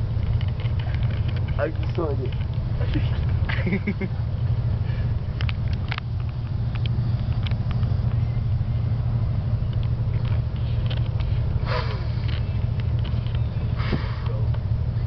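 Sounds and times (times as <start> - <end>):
bus engine rumble: 0.0 - 15.0
faint clicks: 5.4 - 8.2.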